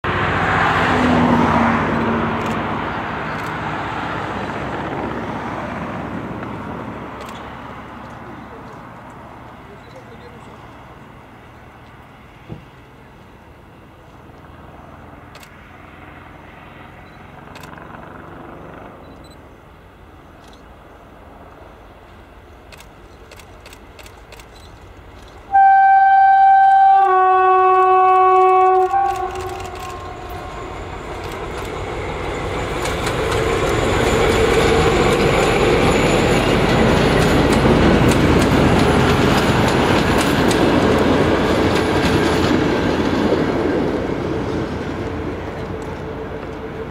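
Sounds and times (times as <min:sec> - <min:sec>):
locomotive horn: 0:25.5 - 0:31.1
locomotive engine running: 0:26.2 - 0:46.9
train wheels clattering on rails: 0:27.7 - 0:46.9.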